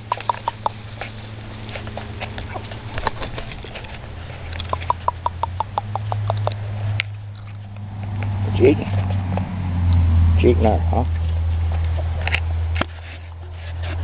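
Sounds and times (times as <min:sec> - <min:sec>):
chicken clucking: 0:00.0 - 0:01.2, 0:02.0 - 0:06.6
low steady hum: 0:00.0 - 0:14.0.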